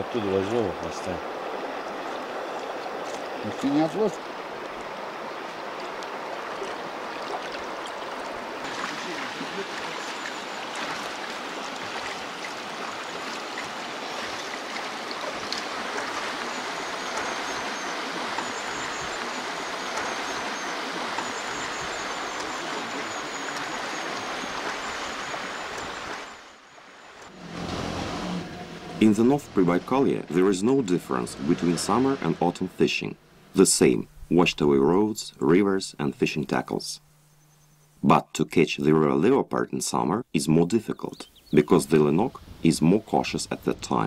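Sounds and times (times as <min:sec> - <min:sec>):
river water rushing over stones: 0:00.0 - 0:32.8.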